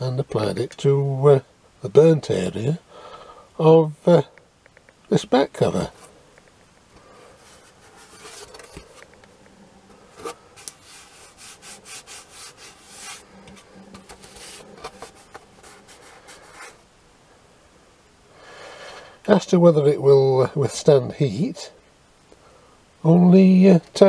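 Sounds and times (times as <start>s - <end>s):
fingers scraping a board: 10.2s - 16.8s.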